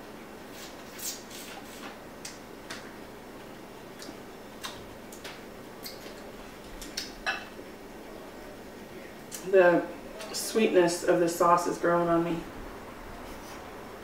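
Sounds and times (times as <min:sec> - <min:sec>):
chewing and lip-smacking: 0:03.9 - 0:07.2.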